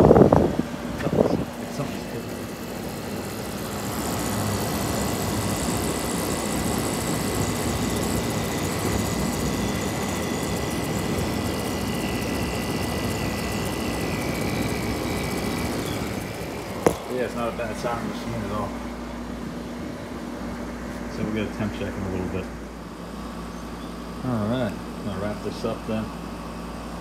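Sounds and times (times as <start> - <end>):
air conditioner fan whirring: 0.0 - 27.0
sharp tap: 16.8 - 17.1.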